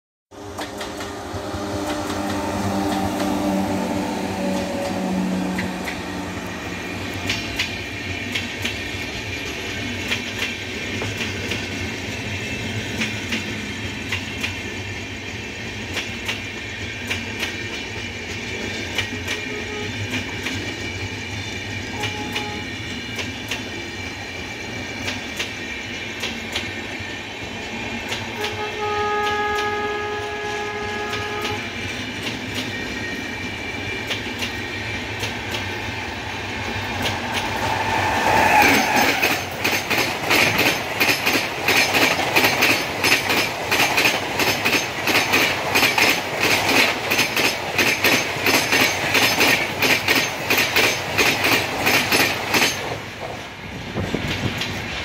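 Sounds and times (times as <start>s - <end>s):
train horn: 0.3s - 7.3s, 19.2s - 20.3s, 21.8s - 22.9s, 28.3s - 31.9s
electric locomotive hum: 0.3s - 55.0s
train wheels clacking over rail joints: 0.4s - 3.8s, 4.4s - 55.0s.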